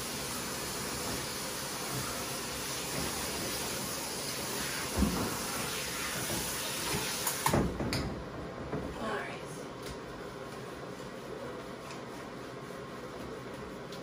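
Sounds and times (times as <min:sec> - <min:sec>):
shower sprayer water on dog: 0:00.0 - 0:07.9
thump: 0:04.9 - 0:05.4.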